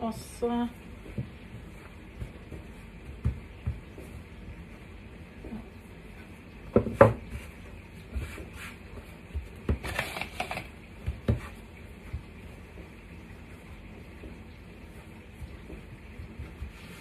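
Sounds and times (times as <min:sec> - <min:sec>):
rubbing rustle: 0:14.9 - 0:17.0.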